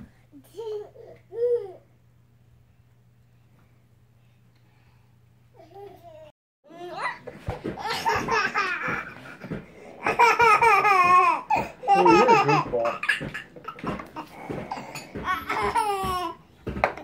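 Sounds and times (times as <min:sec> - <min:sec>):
toddler laughing: 0:07.8 - 0:16.4.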